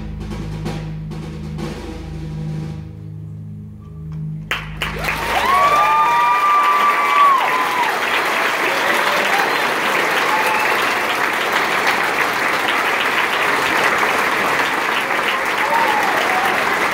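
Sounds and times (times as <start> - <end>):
audience applauding: 4.5 - 16.9
high cheers: 4.8 - 16.9.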